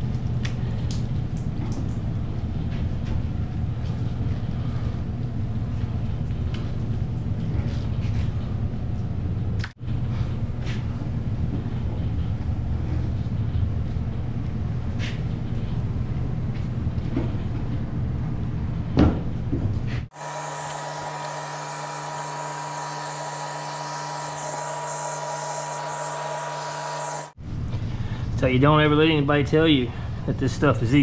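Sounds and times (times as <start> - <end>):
machine hum: 20.1 - 27.4
high whine: 20.2 - 27.4.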